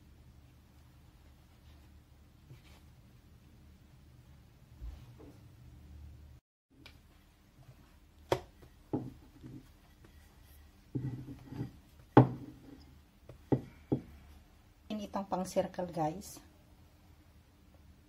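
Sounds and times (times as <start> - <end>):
rolling pin knocking on dough: 8.3 - 9.6, 12.0 - 12.6, 13.3 - 14.1.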